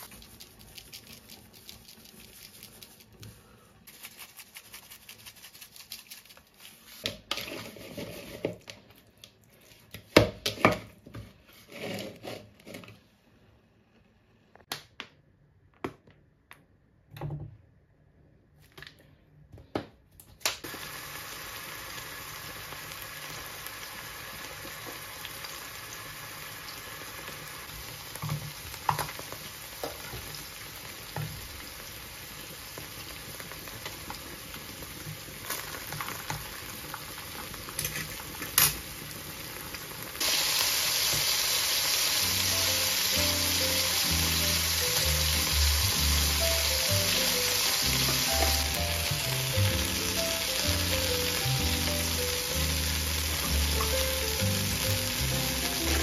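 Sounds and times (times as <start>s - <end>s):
hot oil popping: 20.5s - 31.9s, 32.6s - 56.0s
steak sizzling in a frying pan: 20.7s - 56.0s.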